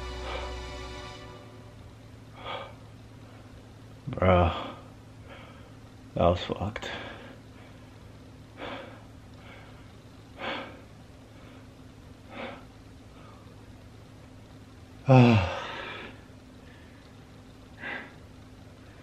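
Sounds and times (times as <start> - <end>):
man breathing hard: 0.0 - 1.0, 2.3 - 3.6, 4.4 - 5.8, 6.8 - 13.6, 15.1 - 17.1, 17.8 - 18.2
man sighing: 15.1 - 16.1.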